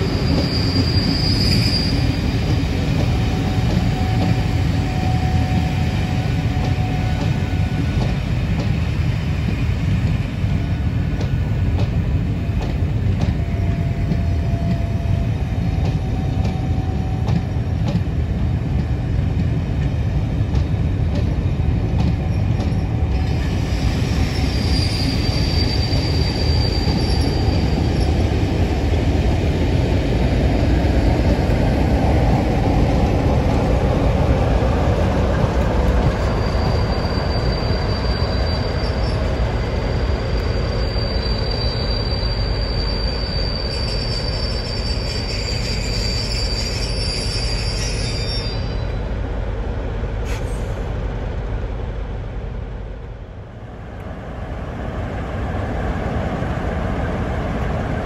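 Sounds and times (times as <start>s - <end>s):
high wheel squeal: 0.0s - 2.4s, 23.2s - 28.2s, 36.0s - 49.0s
train rolling over rails: 0.0s - 58.0s.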